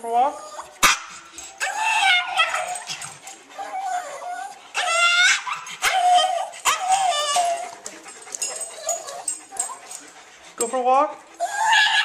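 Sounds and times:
small dog whining and yipping: 3.6 - 7.7, 11.4 - 12.0.

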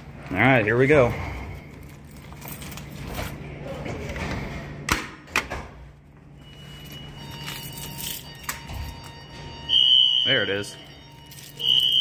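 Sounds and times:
fire alarm pull station clacks: 7.2 - 10.3.

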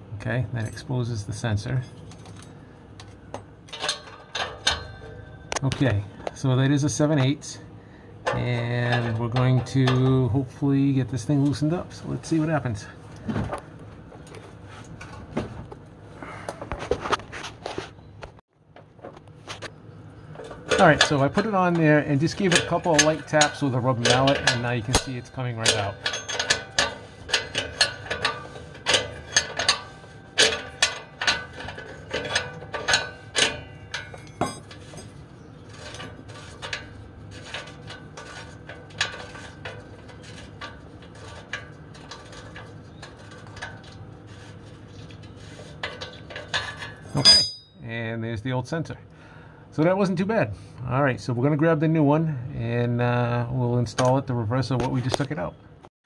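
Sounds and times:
wrench clicking and scraping: 22.4 - 47.7
scraping of sensor unscrewed: 34.7 - 47.0.

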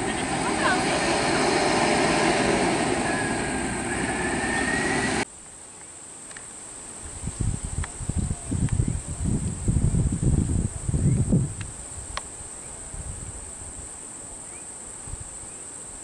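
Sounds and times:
buses driving past: 0.0 - 5.3.

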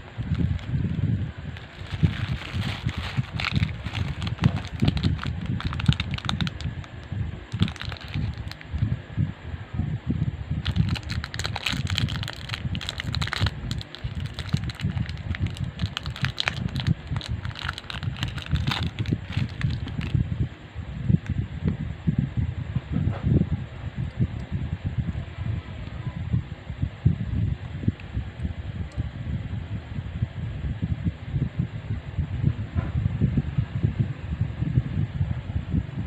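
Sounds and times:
plastic packaging crinkling: 0.0 - 1.0, 1.6 - 8.8, 10.6 - 20.2
steady low rumble: 0.0 - 36.0.

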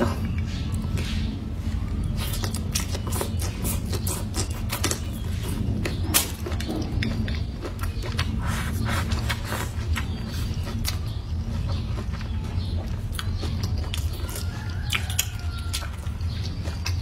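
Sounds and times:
person chewing food: 0.0 - 17.0
steady low hum: 0.0 - 17.0.

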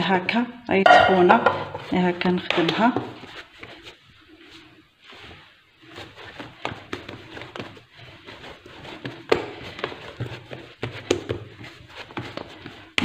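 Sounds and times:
sharp knock on countertop: 0.9 - 1.8
hands kneading dough: 1.0 - 13.0.

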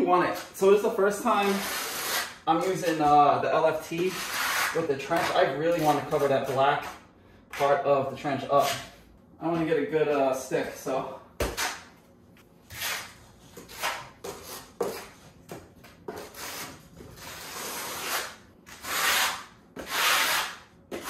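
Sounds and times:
trowel scraping mortar: 1.4 - 3.0, 16.2 - 21.0.

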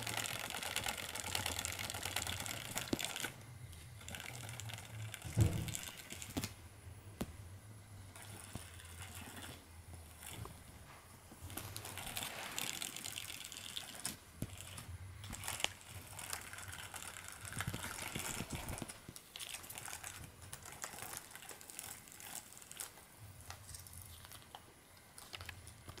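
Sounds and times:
toy motor hum: 0.0 - 6.4.

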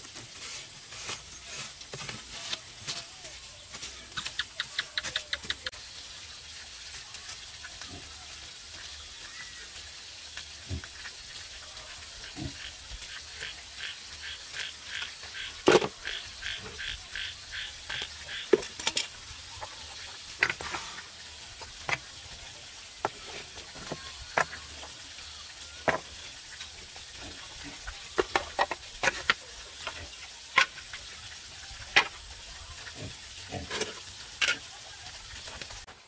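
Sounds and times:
steady hiss: 8.9 - 34.0.

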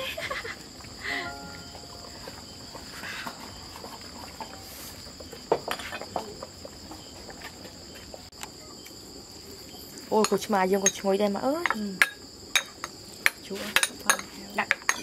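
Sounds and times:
night insects chirring: 0.0 - 15.0
dishes clinking: 13.8 - 15.0.

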